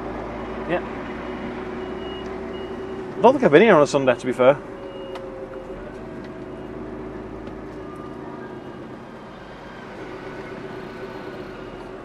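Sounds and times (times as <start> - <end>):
lorry engine humming: 0.0 - 12.0.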